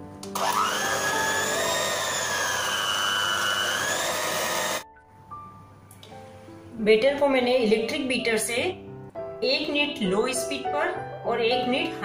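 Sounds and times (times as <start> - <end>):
electric hand mixer whining: 0.3 - 4.8.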